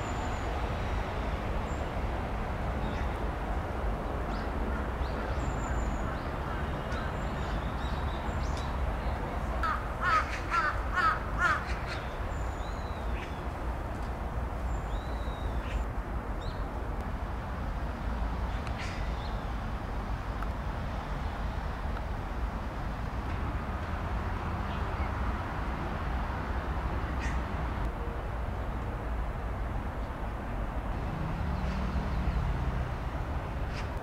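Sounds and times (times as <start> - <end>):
distant traffic rumble: 0.0 - 34.0
crow cawing: 9.6 - 12.0.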